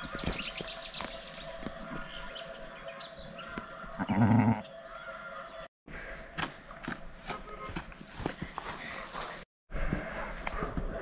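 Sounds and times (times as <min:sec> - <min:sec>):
sheep bleating: 0:04.0 - 0:04.7.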